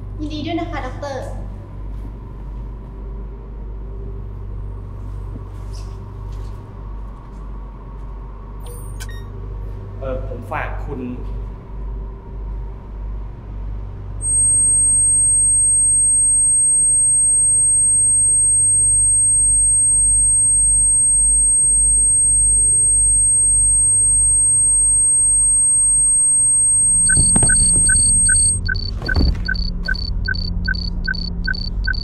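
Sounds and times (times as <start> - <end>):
low throbbing rumble and hum: 11.2 - 32.0
high-pitched ringing tone: 14.2 - 32.0
rapid electronic beeps: 14.2 - 32.0.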